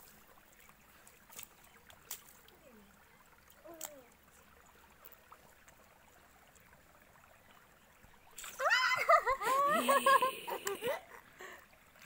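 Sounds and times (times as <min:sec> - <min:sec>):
water splashing under feet: 0:00.0 - 0:02.6.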